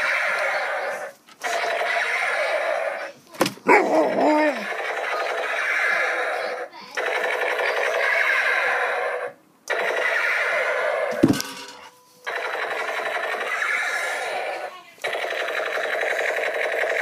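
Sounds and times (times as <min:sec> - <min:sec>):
dog howling: 0:03.7 - 0:04.7.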